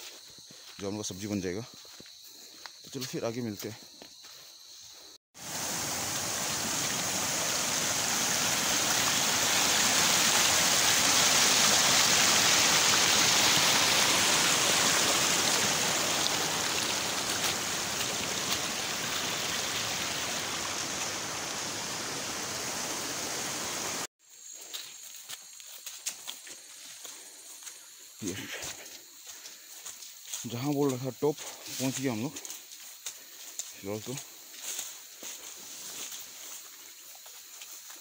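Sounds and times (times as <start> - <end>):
stream water rushing: 5.4 - 24.1.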